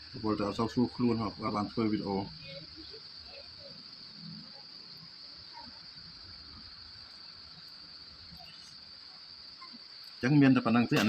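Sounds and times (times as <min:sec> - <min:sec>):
high-pitched insect trill: 0:00.0 - 0:11.0.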